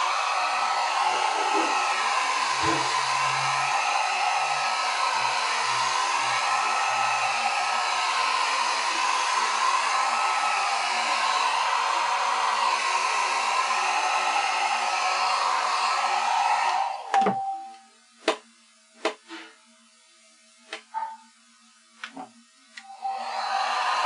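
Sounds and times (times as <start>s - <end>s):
hot-air dryer blowing: 0.0s - 18.4s, 22.0s - 24.0s.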